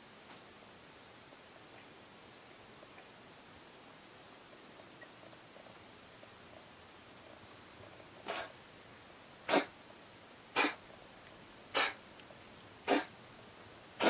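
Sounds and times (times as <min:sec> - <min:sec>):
cat coughing: 0:08.3 - 0:08.5, 0:09.5 - 0:09.8, 0:10.6 - 0:10.8, 0:11.7 - 0:12.0, 0:12.8 - 0:13.1.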